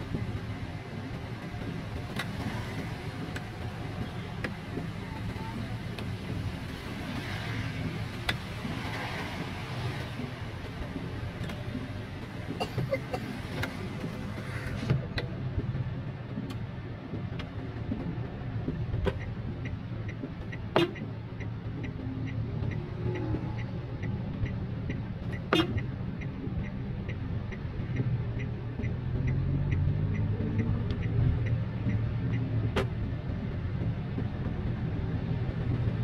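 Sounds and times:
car engine and tyre noise: 0.0s - 36.0s
turn signal clicking: 0.1s - 36.0s.

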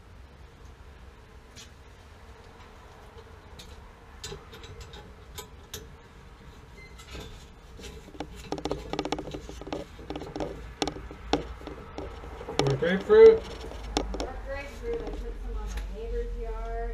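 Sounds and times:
pulsing creak on pipe: 6.8s - 15.3s
light clicks and taps: 7.8s - 15.9s.

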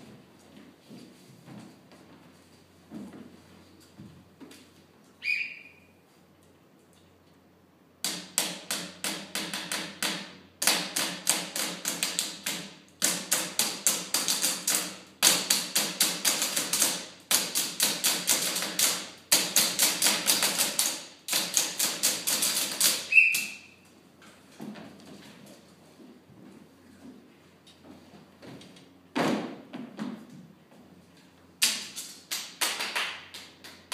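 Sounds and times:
whistle blast: 5.2s - 5.9s, 23.1s - 23.8s
sticks beating junk objects: 8.0s - 23.5s.

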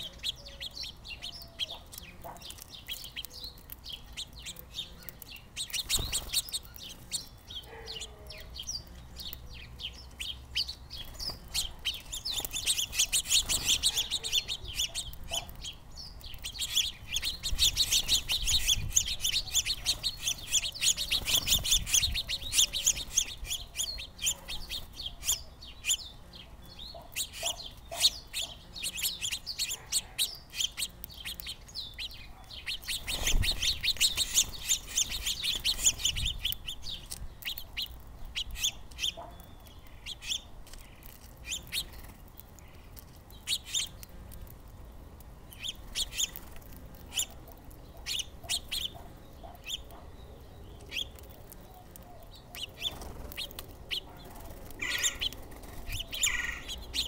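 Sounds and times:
finches chirping: 0.0s - 44.5s, 45.5s - 57.0s.

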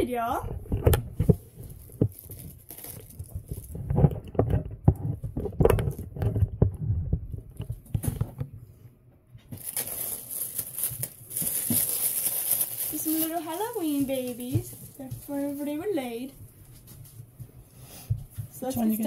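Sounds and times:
plastic sheet crinkling: 0.2s - 6.8s, 9.5s - 17.2s
plastic lid knocking and rustling: 0.5s - 8.5s.

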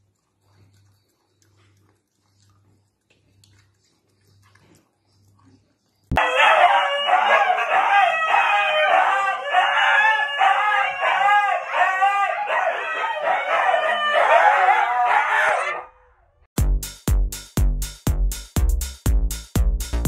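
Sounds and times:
huskies howling: 6.2s - 16.2s.

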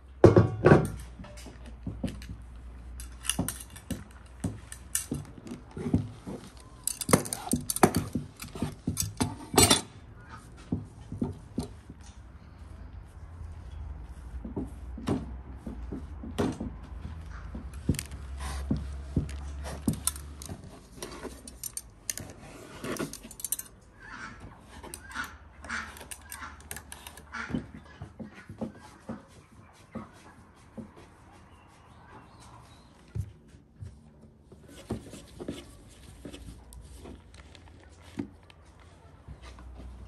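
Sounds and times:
hands working dough: 14.1s - 40.0s
chickens calling: 23.9s - 30.4s.

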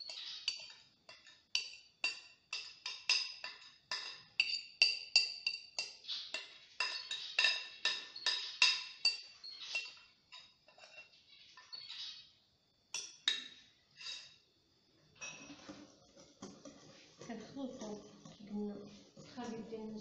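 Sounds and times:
whisk knocking against glass bowl: 0.0s - 10.0s.

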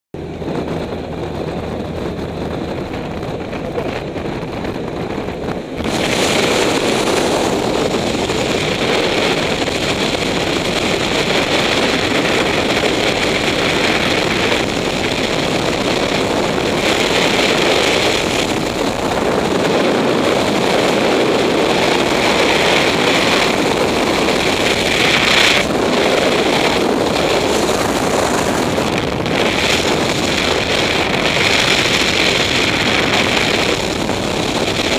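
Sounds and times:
aircraft engine drone: 0.2s - 34.9s
wind rush on microphone: 0.2s - 34.9s.

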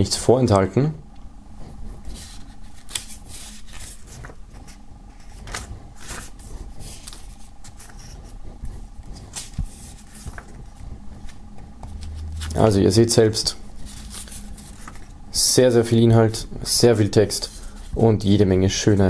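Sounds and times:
faint steady hum: 0.0s - 19.0s
paper pages turning: 2.0s - 8.3s, 9.0s - 15.2s.

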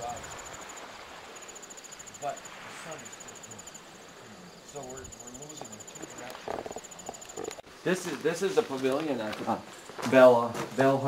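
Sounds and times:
insect chirping: 0.0s - 8.5s.

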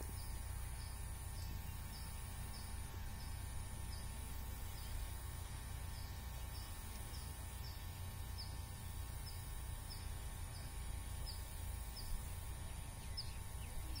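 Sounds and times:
bird chirping: 9.2s - 14.0s.

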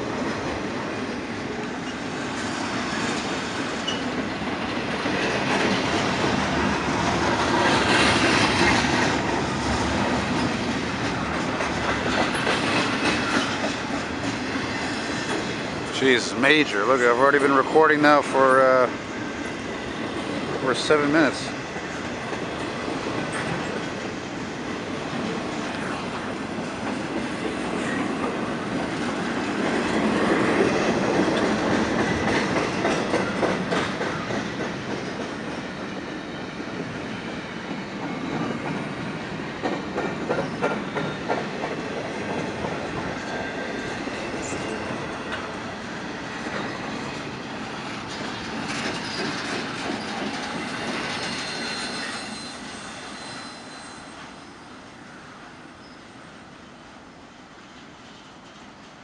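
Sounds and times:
freight train rumbling past: 0.0s - 59.0s
wheels clicking over rail joints: 1.6s - 24.2s, 24.9s - 52.3s
faint wheel squeal: 48.7s - 55.2s, 55.8s - 56.3s.

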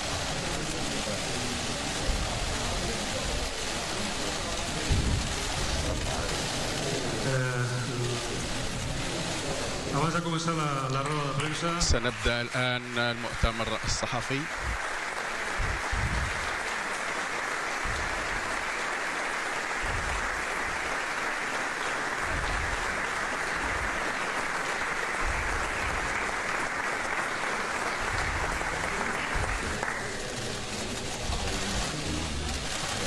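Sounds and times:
audience applauding: 0.0s - 33.0s.

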